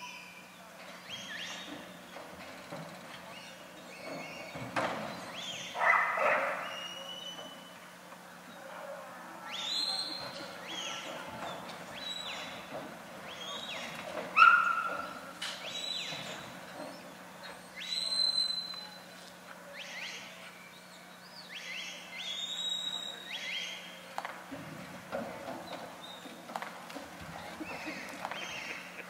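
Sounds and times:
short high whistles: 17.8 - 19.0.

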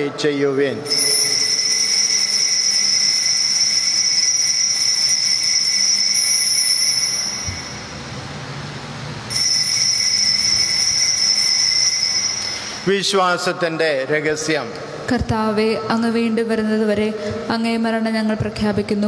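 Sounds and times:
altar bell ringing: 0.8 - 8.0, 9.3 - 12.9.

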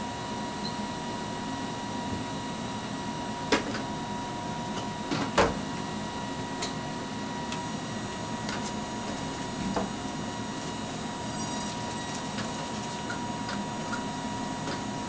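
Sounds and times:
videotape machines whining: 8.4 - 15.0.

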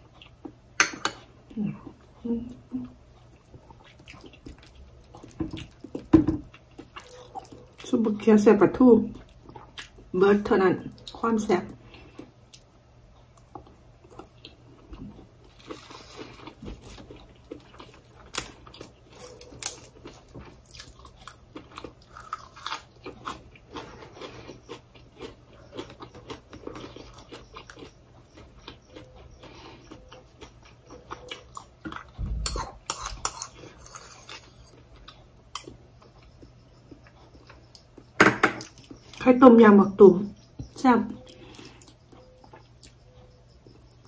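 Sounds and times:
wet chewing mouth sounds: 2.9 - 7.9, 11.8 - 39.2.

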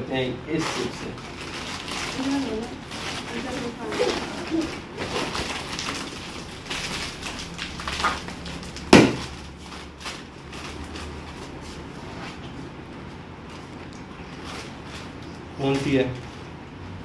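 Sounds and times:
foil chip packet crinkling: 0.6 - 11.6
loud sharp snap of packet: 8.8 - 9.3.

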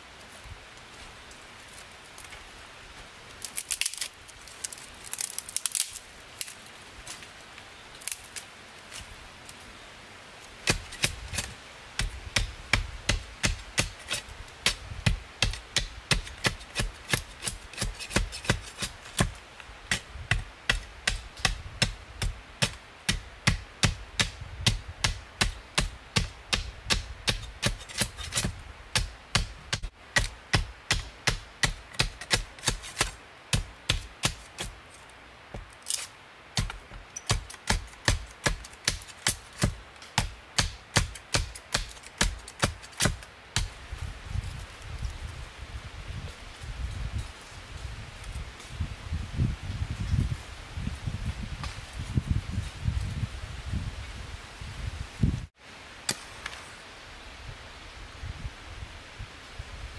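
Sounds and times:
dry sticks rustling and crackling: 0.1 - 21.6, 26.9 - 30.4, 31.6 - 48.8.

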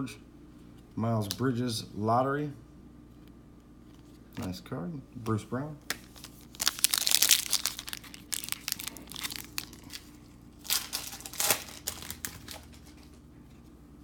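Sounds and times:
wrapper crinkling and tearing: 5.9 - 13.2.

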